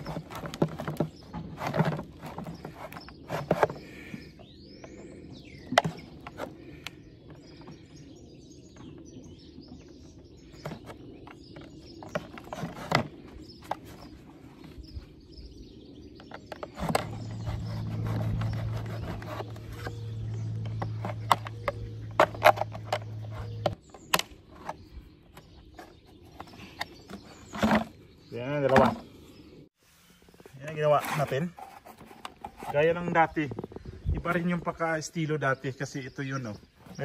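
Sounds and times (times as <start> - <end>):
birds chirping: 0.0 - 37.0
aircraft engines droning: 17.0 - 23.8.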